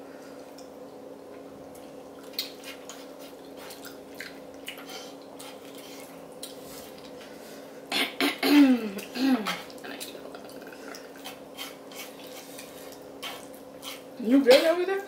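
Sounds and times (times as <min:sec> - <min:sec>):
slurping and chewing: 0:09.5 - 0:14.1.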